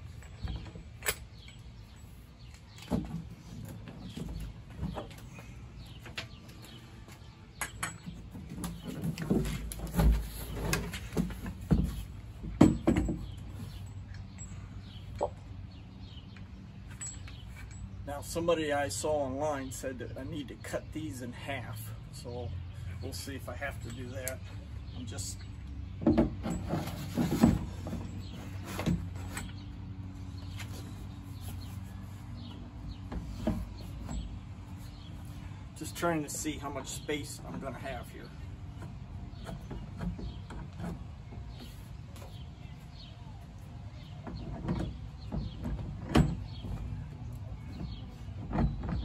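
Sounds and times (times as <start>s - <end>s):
axle clunking and scraping in plastic: 8.1s - 13.4s, 26.0s - 29.6s.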